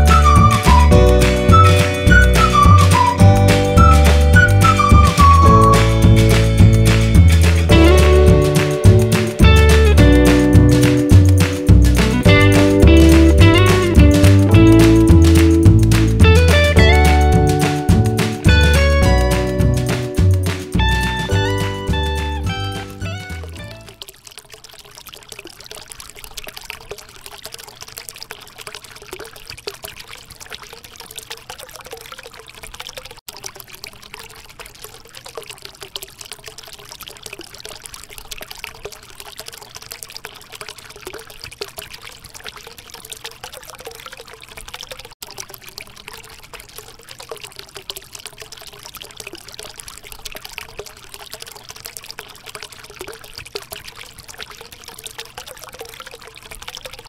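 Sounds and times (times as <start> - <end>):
fountain water trickling: 0.0 - 57.0.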